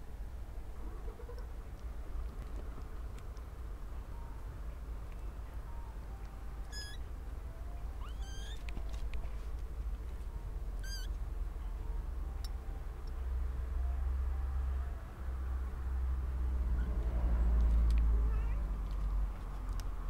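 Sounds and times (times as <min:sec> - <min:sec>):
kittens mewing: 0:06.7 - 0:07.0, 0:08.0 - 0:08.7, 0:10.8 - 0:11.1.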